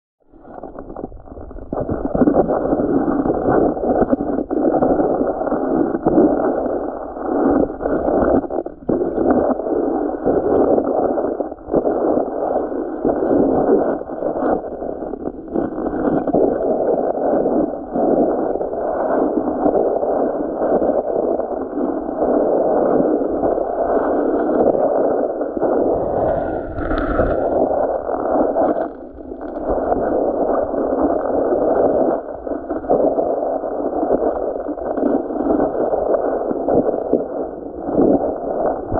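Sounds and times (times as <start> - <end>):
muffled underwater sloshing: 25.4 - 31.0.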